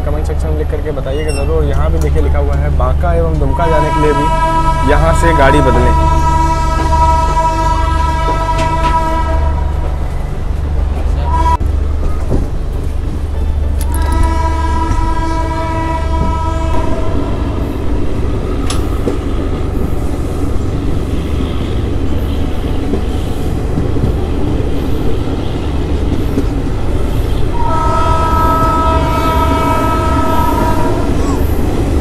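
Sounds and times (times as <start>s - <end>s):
train wheels rumbling on rail: 0.0s - 32.0s
locomotive horn: 3.5s - 10.1s, 11.2s - 11.6s, 13.8s - 17.5s, 27.0s - 31.6s.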